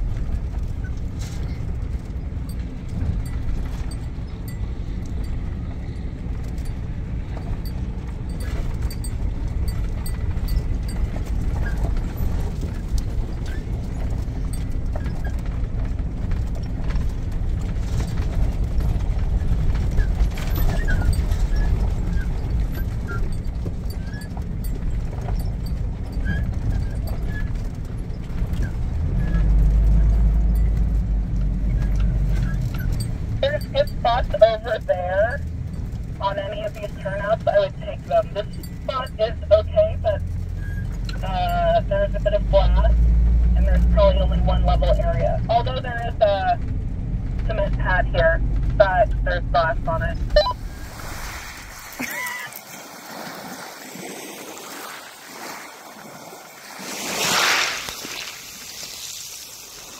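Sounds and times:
rattles and knocks: 0.0 - 33.4
vehicle engine and road rumble: 0.0 - 59.9.

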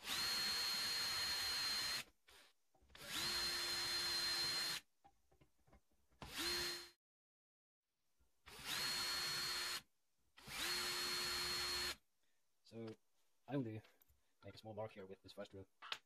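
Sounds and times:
cordless drill boring into metal: 0.0 - 2.4, 3.0 - 4.8, 6.2 - 7.0, 8.5 - 9.8, 10.4 - 12.0.

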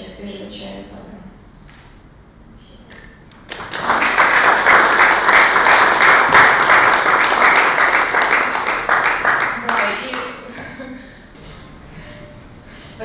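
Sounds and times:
audience applauding: 3.4 - 10.4.

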